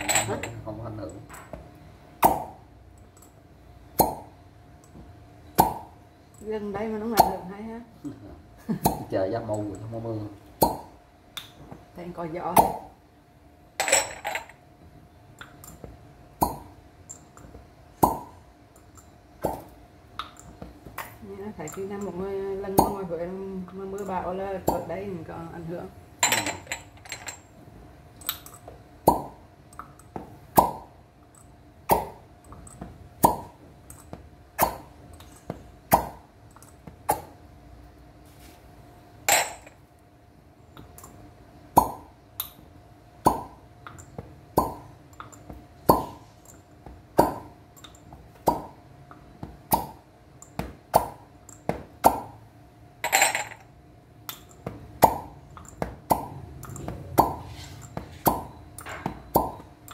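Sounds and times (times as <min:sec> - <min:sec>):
glass cups popping on skin: 0:10.6 - 0:11.6, 0:28.2 - 0:37.4, 0:53.0 - 0:59.9.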